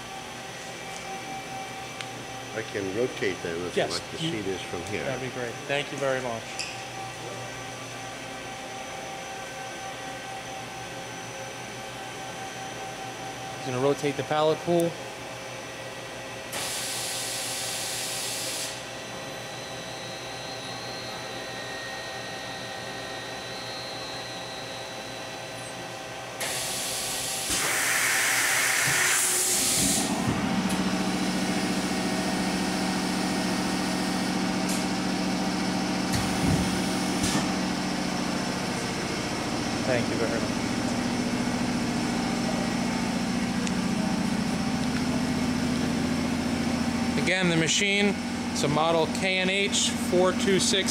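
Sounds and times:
air hissing: 0:26.4 - 0:30.2.

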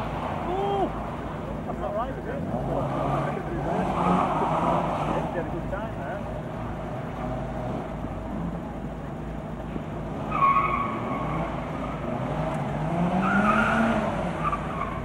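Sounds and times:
car engine revving: 0:00.0 - 0:15.0
tyres squealing: 0:02.4 - 0:05.8.

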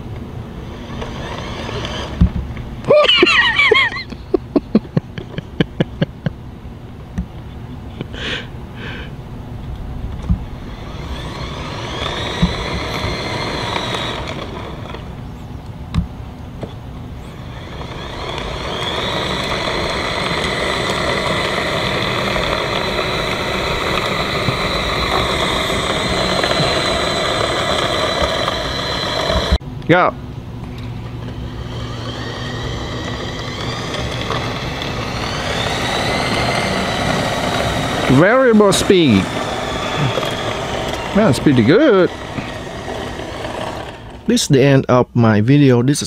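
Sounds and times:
lawn mower motor whining: 0:00.0 - 0:06.1, 0:06.8 - 0:29.7, 0:30.3 - 0:44.9
low rumble: 0:09.1 - 0:13.1
quick run of clicks: 0:09.7 - 0:16.1, 0:17.3 - 0:29.6, 0:30.6 - 0:44.3.

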